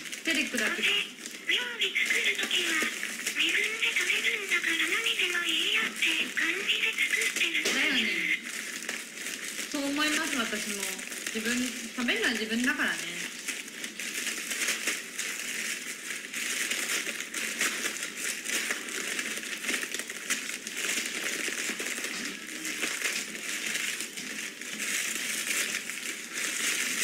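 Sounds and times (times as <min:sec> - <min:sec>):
dry food crunching: 0:00.0 - 0:27.0
plastic bag crinkling: 0:00.0 - 0:27.0.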